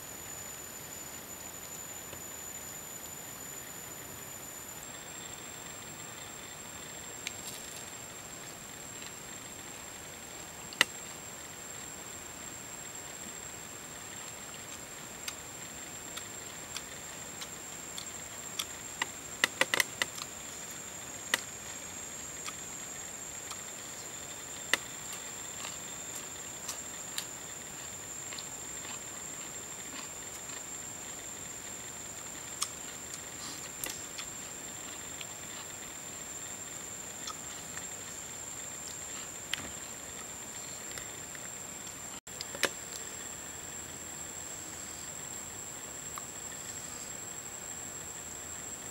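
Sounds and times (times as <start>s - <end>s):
high-pitched insect drone: 0.0s - 10.3s
person eating with crunches: 23.4s - 30.8s.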